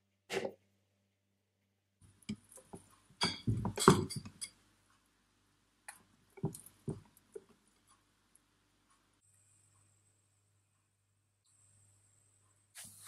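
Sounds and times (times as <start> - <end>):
utensils clinking on glass bowl: 3.2 - 4.6.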